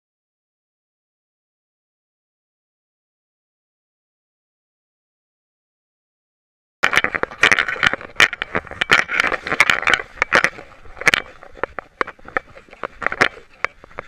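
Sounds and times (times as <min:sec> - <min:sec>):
camera housing rubbing against fur: 0:06.9 - 0:14.0.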